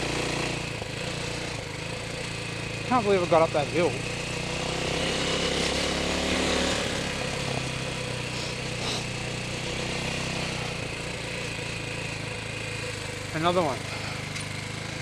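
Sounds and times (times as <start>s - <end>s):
dirt bike engine running: 0.0s - 15.0s.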